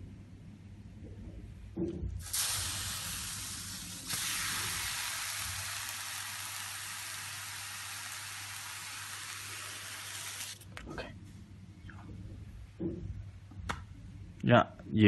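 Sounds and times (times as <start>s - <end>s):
water sizzling and hissing: 2.2s - 10.6s.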